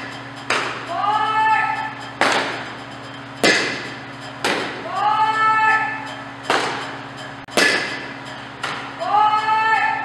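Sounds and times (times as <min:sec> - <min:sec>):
person calling out: 0:00.9 - 0:02.0, 0:04.8 - 0:06.1, 0:09.0 - 0:10.0
softball smacks echoing: 0:03.4 - 0:03.8, 0:07.6 - 0:08.8.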